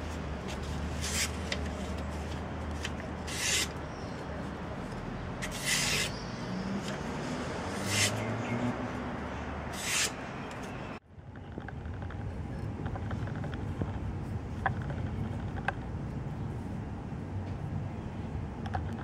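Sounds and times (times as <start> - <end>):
steady background noise: 0.0 - 19.0
knife slicing paper: 0.9 - 1.8, 2.8 - 3.8, 5.4 - 6.2, 7.8 - 8.2, 9.8 - 10.2.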